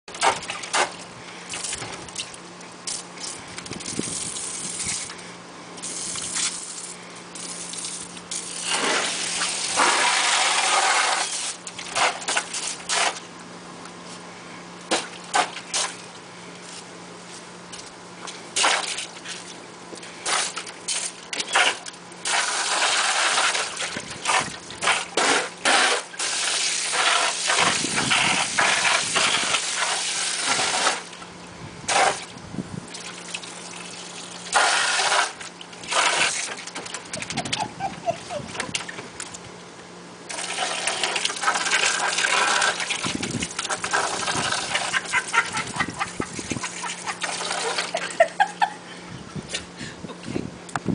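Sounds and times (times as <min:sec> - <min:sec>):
hose water pouring into pool: 0:05.8 - 0:13.2, 0:20.2 - 0:31.2, 0:33.0 - 0:36.8, 0:40.3 - 0:48.0.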